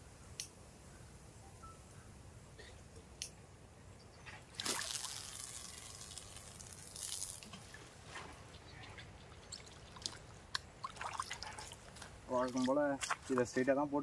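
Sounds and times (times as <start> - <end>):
water dripping and trickling: 4.0 - 13.6
water splashing: 4.5 - 13.6.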